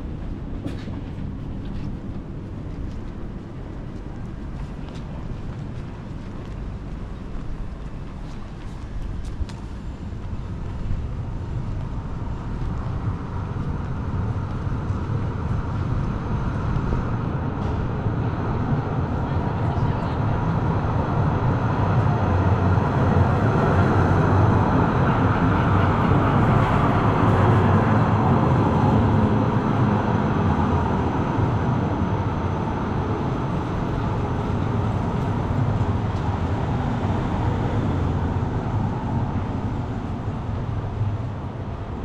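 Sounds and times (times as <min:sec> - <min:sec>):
heavy vehicle rumbling past: 0:13.2 - 0:42.0.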